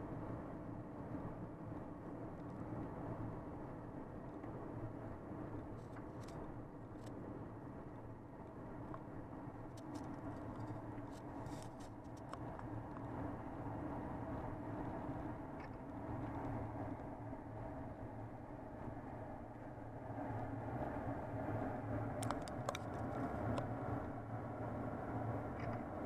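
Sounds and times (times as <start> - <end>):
car engine and tyre noise: 0.0 - 26.0
faint clicks: 22.2 - 23.7, 25.6 - 25.9.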